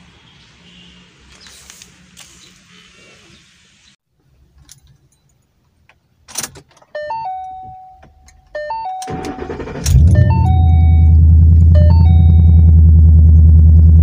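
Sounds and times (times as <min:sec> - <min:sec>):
electronic warning chime: 0:07.0 - 0:12.8
car starter cranking: 0:09.0 - 0:11.6.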